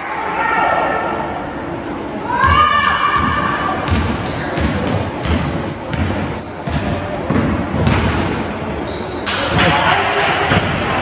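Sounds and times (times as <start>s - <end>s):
sneakers squeaking on court: 3.2s - 9.6s
basketball dribbling on hardwood: 3.8s - 8.2s.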